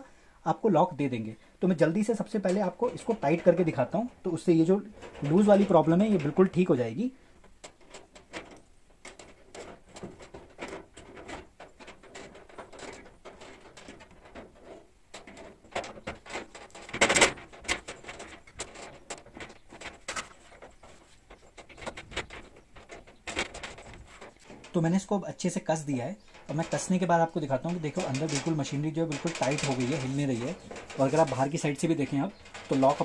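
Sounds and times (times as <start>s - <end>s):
metal clatter: 7.5s - 25.1s, 25.8s - 33.0s.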